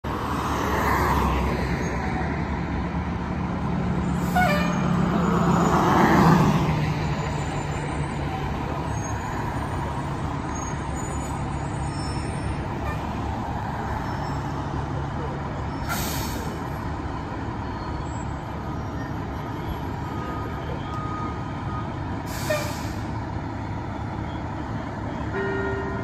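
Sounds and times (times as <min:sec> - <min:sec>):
cars passing: 0:00.0 - 0:26.0
diesel engines idling: 0:07.1 - 0:26.0.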